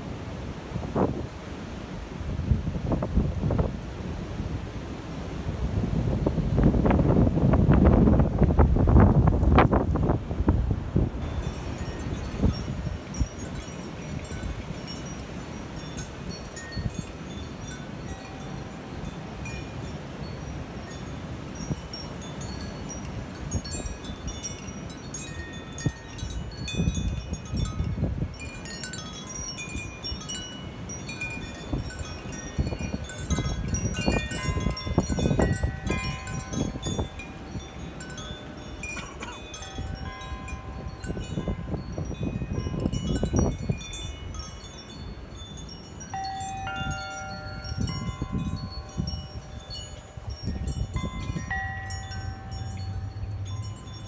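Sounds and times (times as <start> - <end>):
wind buffeting microphone: 0.6 - 4.8, 5.4 - 54.0
wind chime ringing: 11.2 - 54.0.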